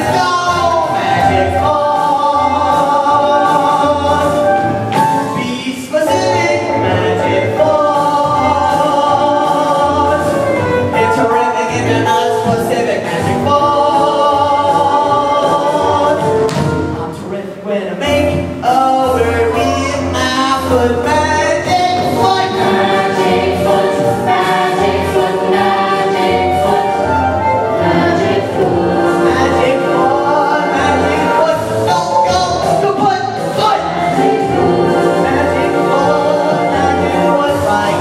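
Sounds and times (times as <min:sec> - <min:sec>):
voices singing a show tune: 0:00.0 - 0:04.6, 0:05.4 - 0:16.5, 0:17.4 - 0:38.0.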